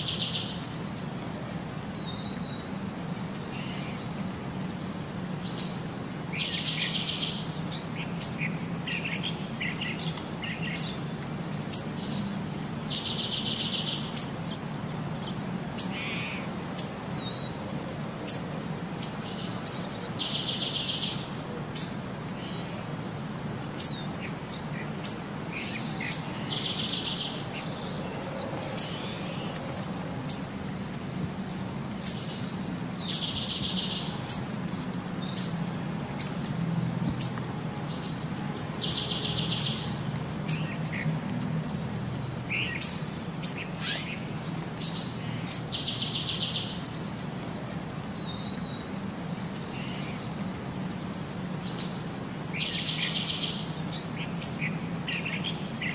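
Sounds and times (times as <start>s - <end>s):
birds chirping and whistling: 25.0s - 30.8s.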